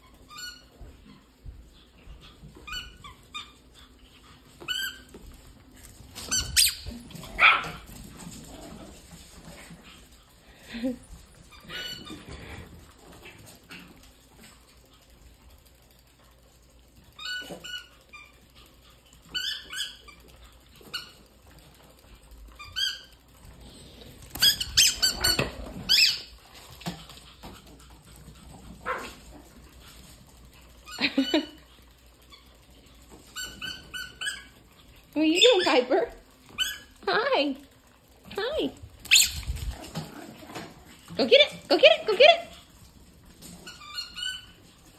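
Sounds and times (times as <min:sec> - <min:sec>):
puppies yipping and squealing: 0:06.2 - 0:07.9, 0:17.1 - 0:21.5, 0:24.3 - 0:27.9, 0:30.7 - 0:37.0, 0:39.0 - 0:40.0, 0:43.4 - 0:44.9.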